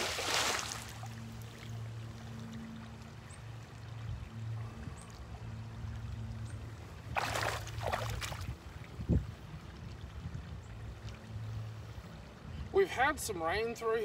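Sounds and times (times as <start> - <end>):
water splashing: 0.0 - 1.8, 7.0 - 8.8
steady low hum: 0.0 - 12.8.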